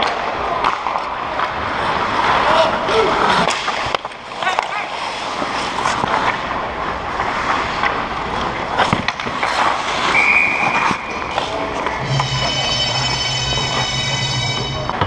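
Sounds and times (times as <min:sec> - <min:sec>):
skate blades scraping ice: 0:00.0 - 0:15.0
sticks and puck clacking: 0:00.0 - 0:15.0
high steady tone: 0:12.0 - 0:15.0.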